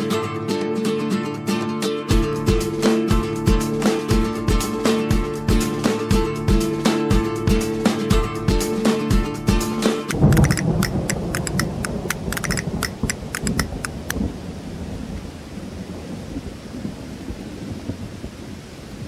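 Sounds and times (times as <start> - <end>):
rain hiss: 10.1 - 19.0
thunder rumble with crackles: 10.1 - 19.0.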